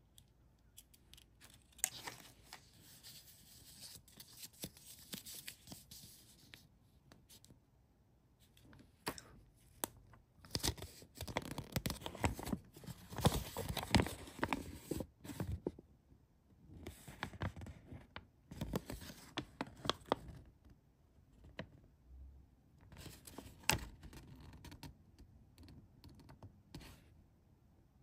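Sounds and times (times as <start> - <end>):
paper crinkling and rustling: 1.4 - 6.6, 10.4 - 15.6, 17.0 - 20.4.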